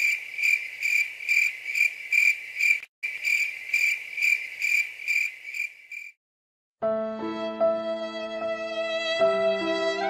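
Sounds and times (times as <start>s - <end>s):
cricket chirping: 0.0s - 6.2s.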